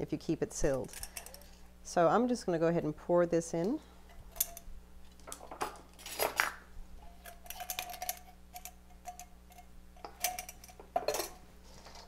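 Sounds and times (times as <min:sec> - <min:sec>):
metal bowl clinking and scraping: 0:07.0 - 0:12.0.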